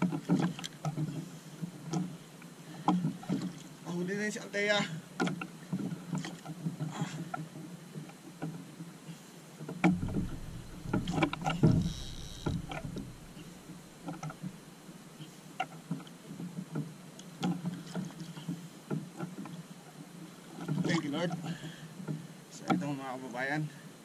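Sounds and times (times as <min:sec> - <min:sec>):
knocks and clicks from boat: 0:00.0 - 0:02.2, 0:02.8 - 0:03.8, 0:05.2 - 0:08.8, 0:09.6 - 0:14.6, 0:15.6 - 0:23.0
water lapping against hull: 0:00.0 - 0:04.0, 0:04.9 - 0:22.8
fishing reel clicking: 0:10.1 - 0:13.7.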